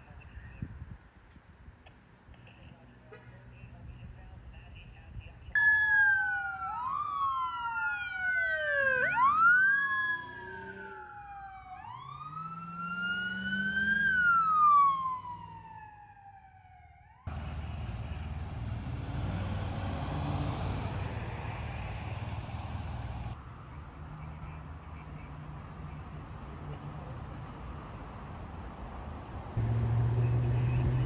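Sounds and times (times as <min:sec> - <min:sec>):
outdoor background noise: 0:00.0 - 0:31.0
police sirens wailing: 0:05.6 - 0:25.2.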